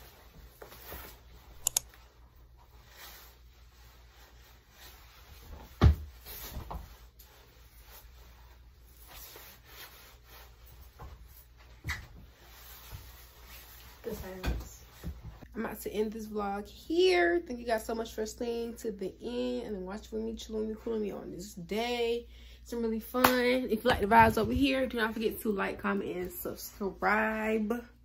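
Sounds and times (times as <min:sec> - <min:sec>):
sharp clicks: 0:01.6 - 0:01.9.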